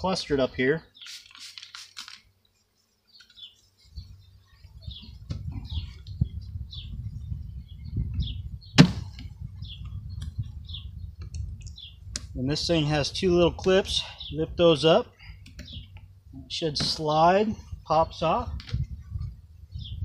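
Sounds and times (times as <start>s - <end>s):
spray bottle squirts: 1.0s - 2.2s
birds chirping: 2.4s - 20.0s.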